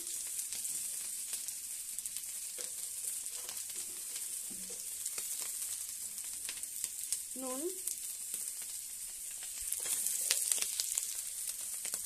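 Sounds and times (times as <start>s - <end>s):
oil crackling: 0.0s - 12.0s
potatoes sizzling in hot oil: 0.0s - 12.0s.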